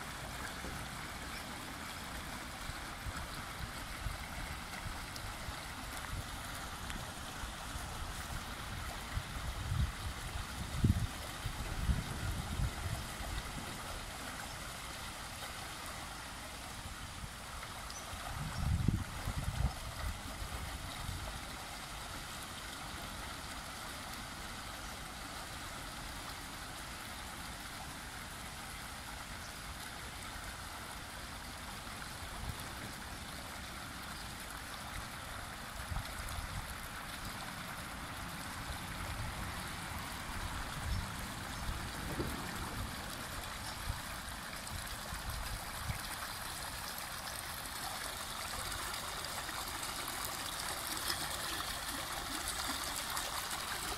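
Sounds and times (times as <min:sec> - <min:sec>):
water jet splashing: 0:39.3 - 0:53.9.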